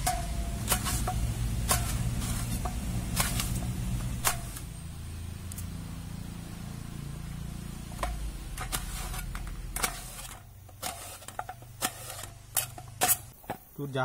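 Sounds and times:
knife cutting apples: 0.0 - 4.7.

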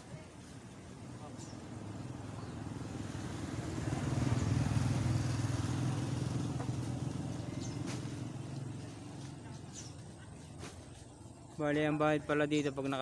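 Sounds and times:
small vehicle engine passing: 1.1 - 10.4.

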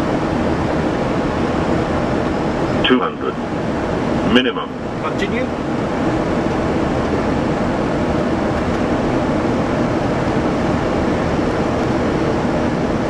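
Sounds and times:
aircraft airflow and engines: 0.0 - 13.0.

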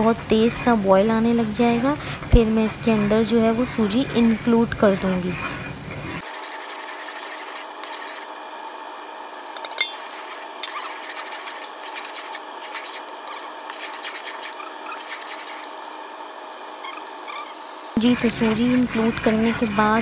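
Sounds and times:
metal spoon scraping pot: 9.6 - 15.7, 16.9 - 20.0.

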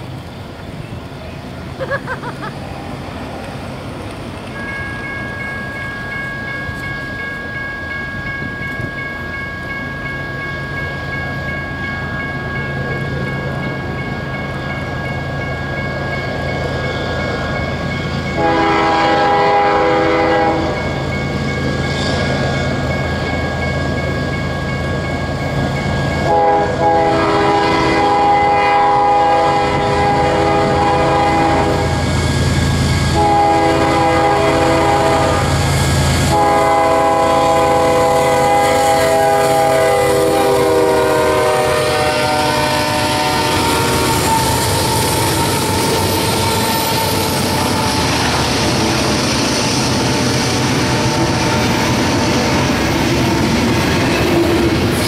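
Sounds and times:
train air horn blasts: 18.3 - 20.8, 26.2 - 32.2, 33.0 - 48.8.

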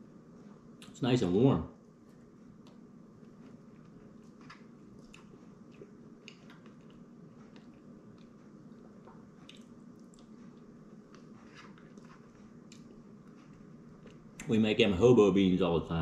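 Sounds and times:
low steady hum: 0.0 - 16.0
wet chewing: 2.5 - 14.5.

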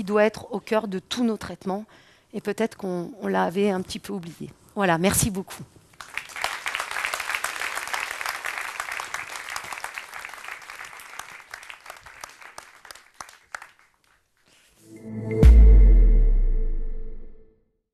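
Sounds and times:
audience applauding: 6.0 - 14.2.

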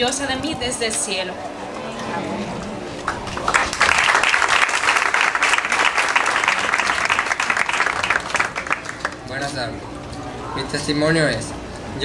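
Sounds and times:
crowd applauding: 3.0 - 9.5.

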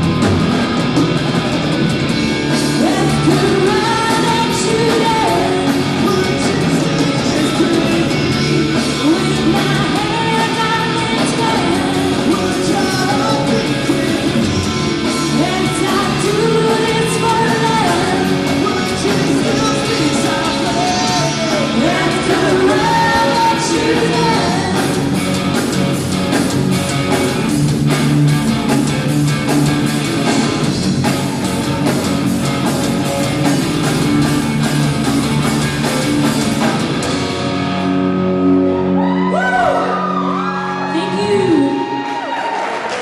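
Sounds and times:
live rock band playing: 0.0 - 43.0
woman singing: 2.7 - 8.1, 8.9 - 14.4, 15.2 - 25.0.

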